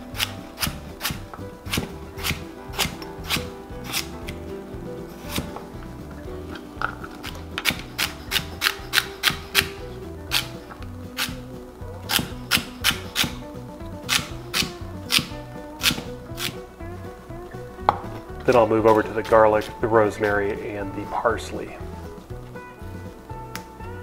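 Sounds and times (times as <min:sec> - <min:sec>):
knife chopping on wooden board: 0:00.2 - 0:04.4.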